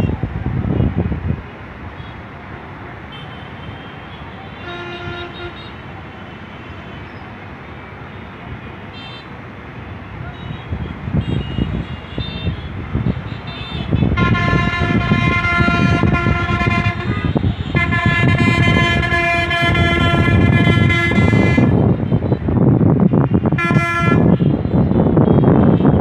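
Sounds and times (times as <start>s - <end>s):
street traffic rumble: 0.0s - 26.0s
vehicle horn blasts: 3.1s - 5.8s, 10.3s - 22.3s, 23.3s - 26.0s.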